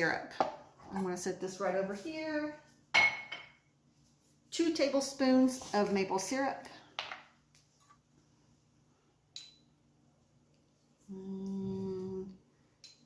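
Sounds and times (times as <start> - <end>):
woman humming a steady note: 11.1 - 12.4.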